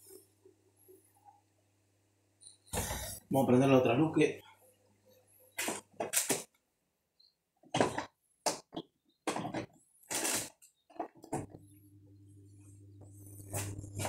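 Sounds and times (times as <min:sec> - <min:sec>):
low electrical hum: 0:09.8 - 0:14.0.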